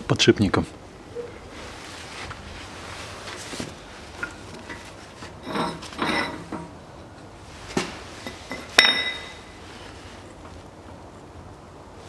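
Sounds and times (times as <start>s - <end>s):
steel parts clinking: 4.2s - 6.8s, 8.2s - 9.6s.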